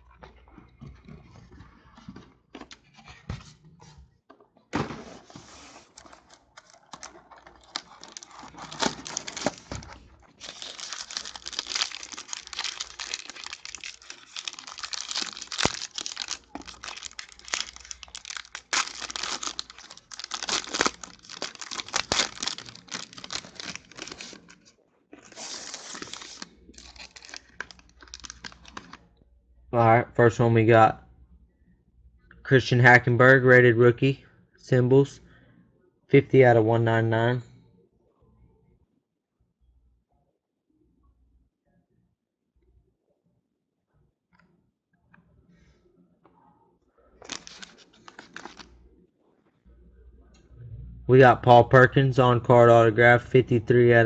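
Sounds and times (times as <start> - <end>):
foil wrapper crinkling and tearing: 5.9 - 29.0, 47.2 - 48.7.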